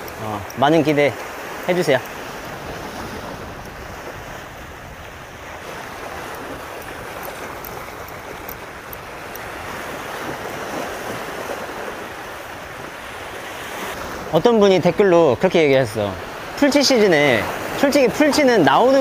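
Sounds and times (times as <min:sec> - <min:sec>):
wind buffeting microphone: 0:00.0 - 0:14.5
sea waves washing on shore: 0:00.0 - 0:19.0.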